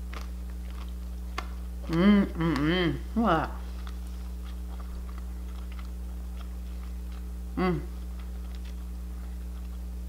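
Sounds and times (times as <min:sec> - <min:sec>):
person chewing crispy food: 0:00.0 - 0:10.0
person saying mm: 0:01.9 - 0:03.6, 0:07.6 - 0:08.0.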